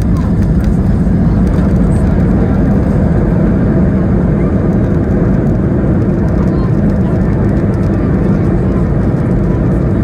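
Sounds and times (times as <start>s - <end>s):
airplane cabin rumble on runway: 0.0s - 10.0s.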